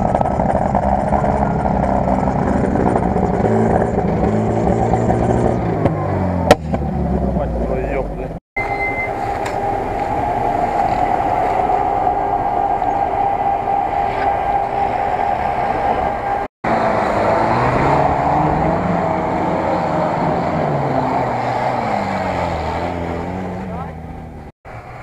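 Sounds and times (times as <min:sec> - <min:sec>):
wheels spinning on dirt: 0:00.0 - 0:05.8
off-road engine revving: 0:00.0 - 0:25.0.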